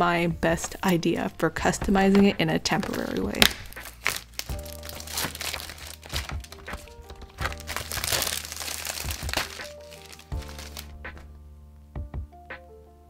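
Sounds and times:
soft background music: 0.0s - 13.0s
plastic film peeling off: 2.7s - 11.2s.

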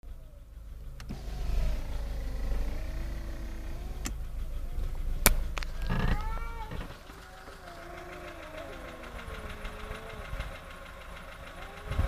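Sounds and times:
car engine idling: 0.0s - 12.0s
cats yowling: 5.5s - 12.0s.

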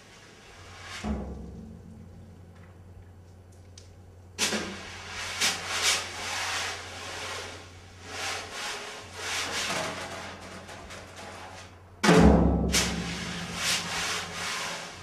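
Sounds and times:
low hum: 1.1s - 4.3s.

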